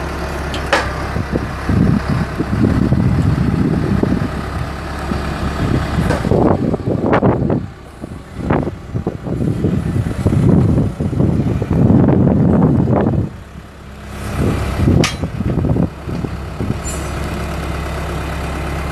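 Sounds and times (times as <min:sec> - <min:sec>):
skid steer engine running: 0:00.0 - 0:18.9
sharp metal clack: 0:15.0 - 0:15.3, 0:16.8 - 0:17.2.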